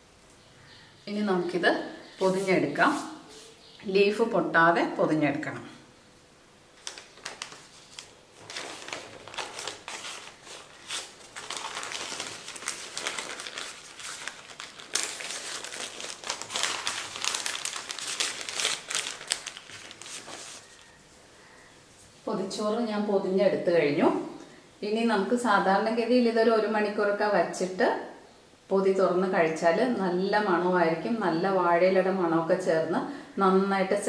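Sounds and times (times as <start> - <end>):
newspaper crinkling and rustling: 6.8 - 21.0.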